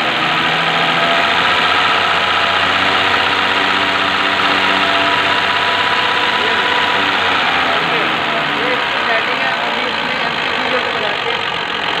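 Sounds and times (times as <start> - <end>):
injection pump test bench running: 0.0 - 12.0.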